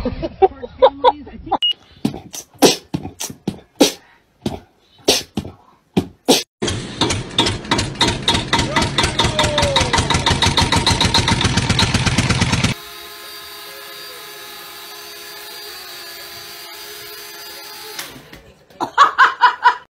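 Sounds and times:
loud beats: 0:02.0 - 0:06.5
loud even clatter: 0:06.6 - 0:12.8.

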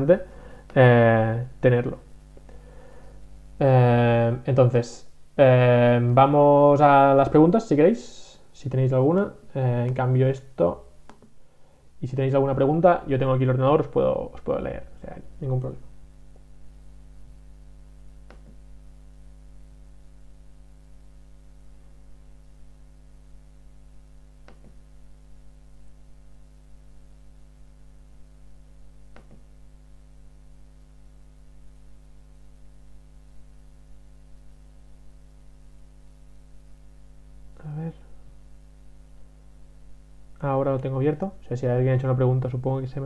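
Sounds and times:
electrical mains hum: 0:00.0 - 0:43.0.

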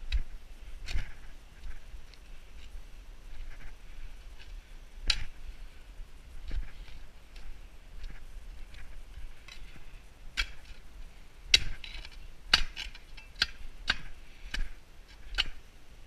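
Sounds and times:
spade digging into soil: 0:06.4 - 0:10.9, 0:11.5 - 0:15.6.

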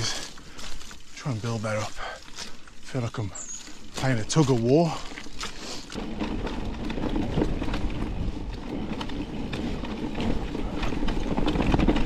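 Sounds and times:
bike clicks and rattles: 0:00.0 - 0:12.0
tyres rolling on dirt: 0:00.0 - 0:12.0.

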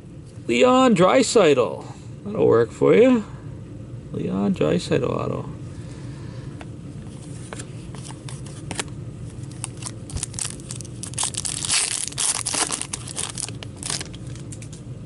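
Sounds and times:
card pack wrapper crinkling: 0:07.9 - 0:14.8.

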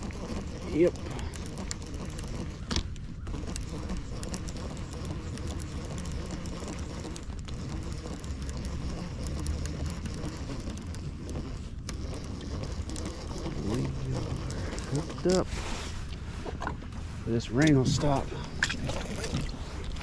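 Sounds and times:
fishing reel gears ticking: 0:00.0 - 0:15.5.

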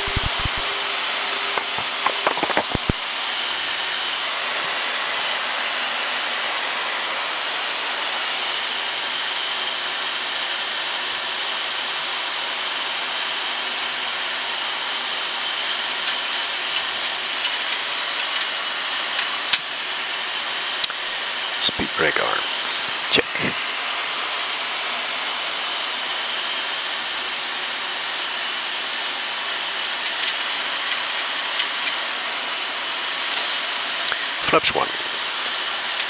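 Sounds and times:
airflow and air-conditioning hiss: 0:29.7 - 0:36.0.

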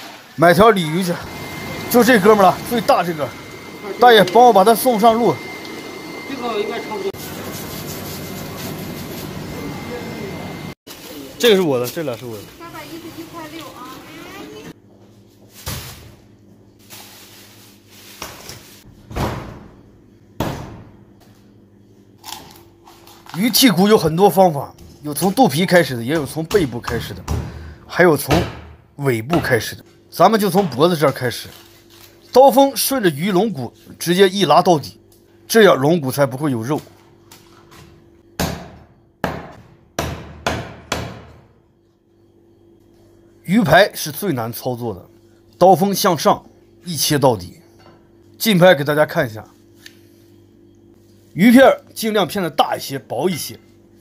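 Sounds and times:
plastic bag rustling on steel counter: 0:10.9 - 0:18.9.

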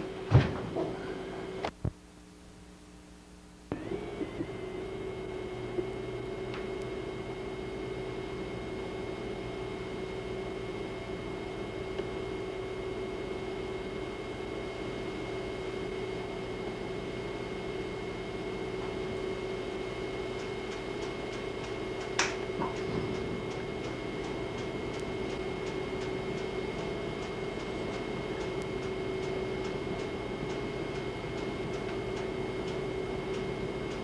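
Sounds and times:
electrical hum and hiss: 0:00.0 - 0:34.0
faint regular ticking: 0:20.4 - 0:22.4, 0:23.2 - 0:34.0.

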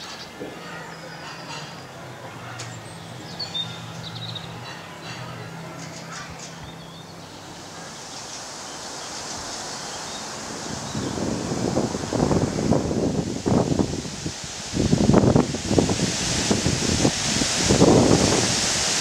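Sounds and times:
songbirds chirping and trilling: 0:00.0 - 0:13.8
wind in leafy trees: 0:00.0 - 0:19.0.

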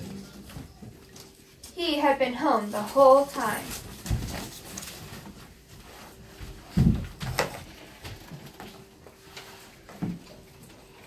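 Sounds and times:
dull knocks and thumps: 0:06.7 - 0:08.4.

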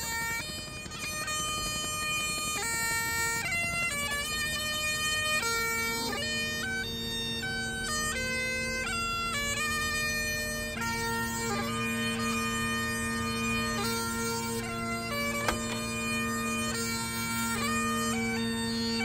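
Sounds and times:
bagpipes playing: 0:00.0 - 0:19.0.

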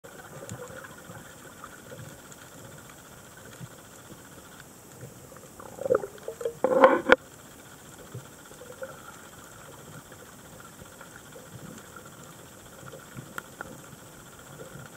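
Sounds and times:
faint underwater hiss: 0:00.1 - 0:14.9
gurgling exhaled bubbles: 0:05.4 - 0:07.2.

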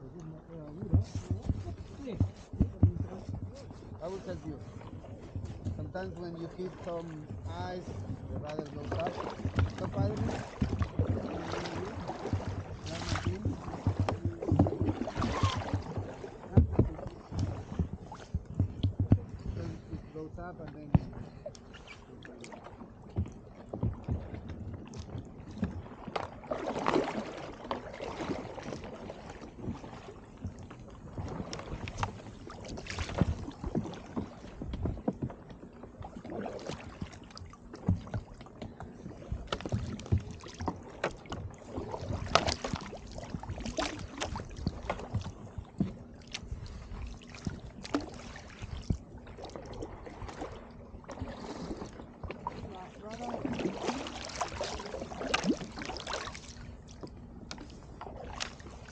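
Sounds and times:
kayak paddle splashing water: 0:00.0 - 0:58.9
ice knocking against hull: 0:00.8 - 0:04.3, 0:07.2 - 0:20.1, 0:37.8 - 0:46.5.

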